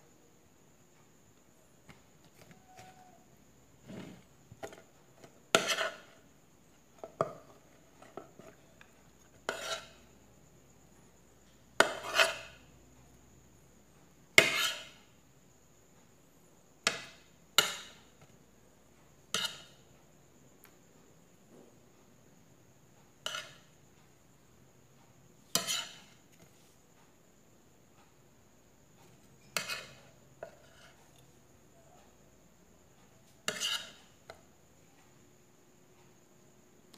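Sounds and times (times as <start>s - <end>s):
metal spoon scraping a plate: 3.8s - 6.2s, 7.5s - 10.1s, 11.8s - 12.6s, 14.4s - 15.1s, 19.3s - 19.8s, 23.2s - 23.7s, 25.5s - 26.2s, 29.3s - 31.3s, 33.2s - 34.4s.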